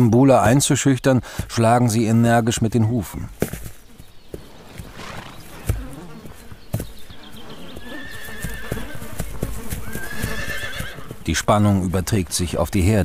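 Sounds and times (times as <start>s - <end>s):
hooves stamping on grass: 0.2s - 13.0s
horse neighing: 4.7s - 6.0s, 7.6s - 11.2s.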